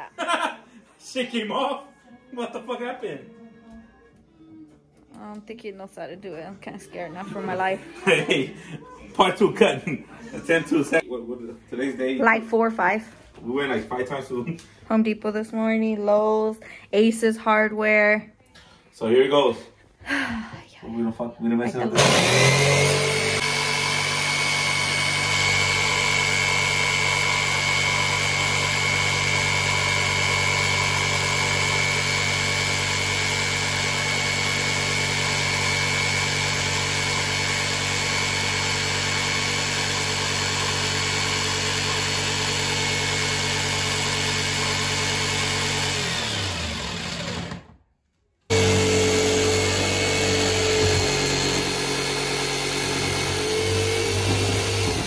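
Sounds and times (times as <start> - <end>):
jigsaw cutting wood: 21.8 - 47.8, 48.5 - 55.0.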